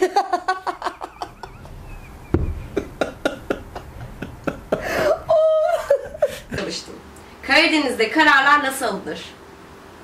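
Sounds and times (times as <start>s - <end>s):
woman laughing: 0.0s - 6.8s
low thump: 2.2s - 4.3s.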